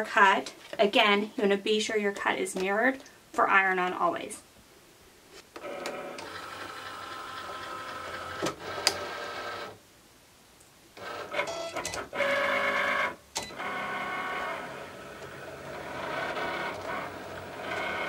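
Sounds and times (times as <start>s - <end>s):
cutting machine motors whining: 11.0s - 18.0s.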